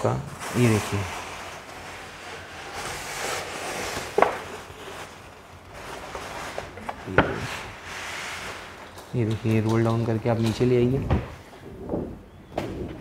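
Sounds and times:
paper rustling as it unrolls: 0:00.0 - 0:09.7.

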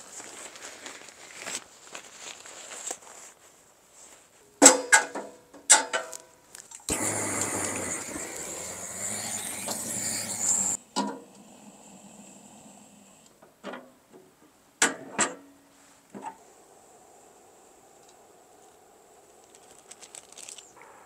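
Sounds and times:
steady hiss: 0:06.9 - 0:13.6.

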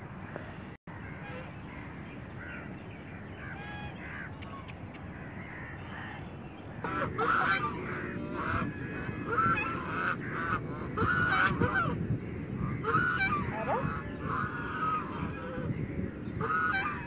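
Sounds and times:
geese honking: 0:03.4 - 0:17.0.

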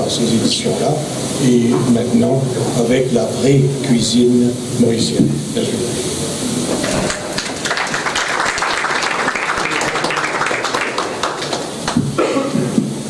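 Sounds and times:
audience applauding: 0:06.7 - 0:12.2.

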